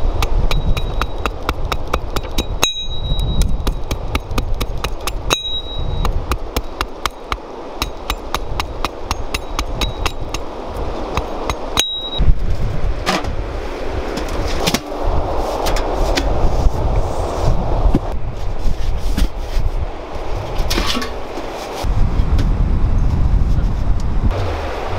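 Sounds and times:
hatchet chopping wood: 0:00.1 - 0:10.5.

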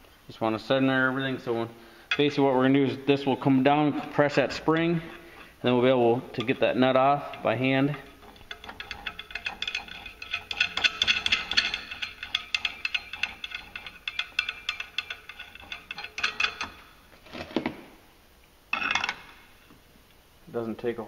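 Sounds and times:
metallic ratchet clicks: 0:06.4 - 0:17.0.

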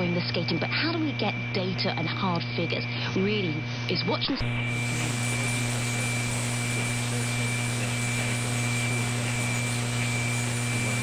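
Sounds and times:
radio static hiss: 0:04.3 - 0:11.0
steady radio whistle: 0:04.4 - 0:11.0.

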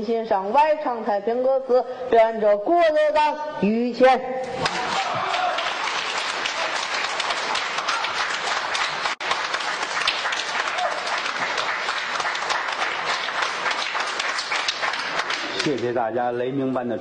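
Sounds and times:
audience applauding: 0:04.6 - 0:16.0.

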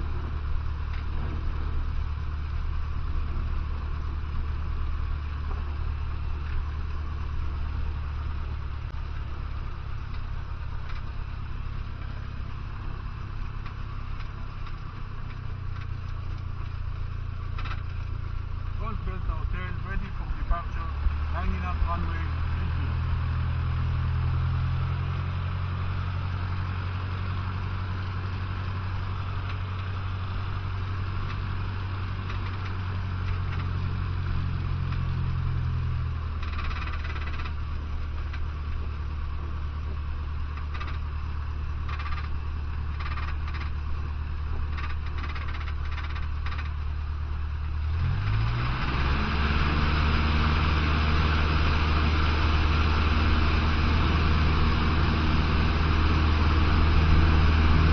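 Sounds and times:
light aircraft engine and propeller: 0:00.0 - 0:57.9
clicks and rattles: 0:17.4 - 0:18.2, 0:32.2 - 0:33.8, 0:36.4 - 0:38.5, 0:40.5 - 0:47.0.

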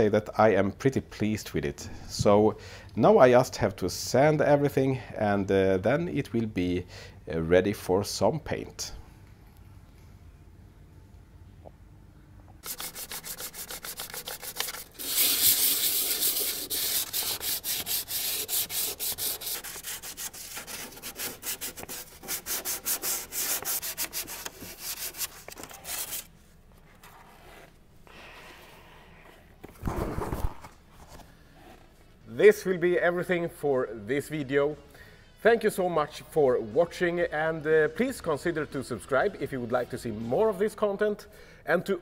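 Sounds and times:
hand sanding metal: 0:12.6 - 0:26.3.

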